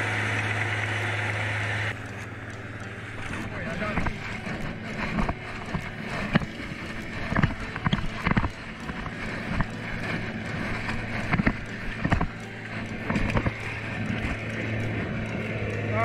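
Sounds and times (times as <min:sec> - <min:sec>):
tractor engine running: 0:00.0 - 0:16.0
footsteps wading through mud: 0:02.0 - 0:16.0.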